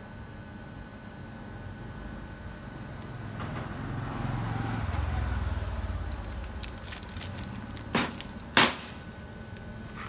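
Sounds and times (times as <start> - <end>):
low vehicle rumble: 2.7 - 10.0.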